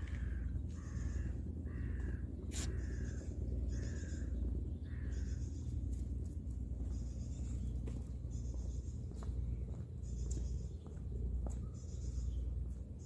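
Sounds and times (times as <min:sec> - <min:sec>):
crow cawing harshly: 0:00.0 - 0:05.4.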